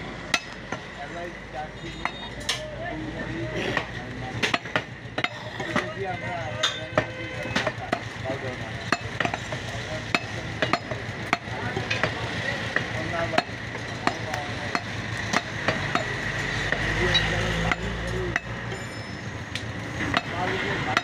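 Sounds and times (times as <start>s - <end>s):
blade knocking on wooden chopping block: 3.8s - 5.9s, 8.9s - 18.6s.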